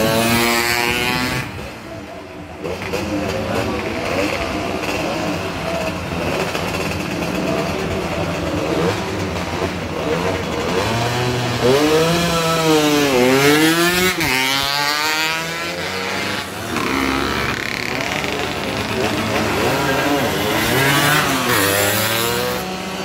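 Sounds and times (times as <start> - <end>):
racing motorcycles passing: 0.0 - 23.0.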